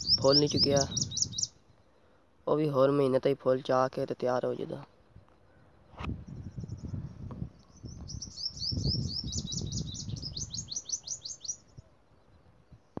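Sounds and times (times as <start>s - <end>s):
songbird singing: 0.0s - 13.0s.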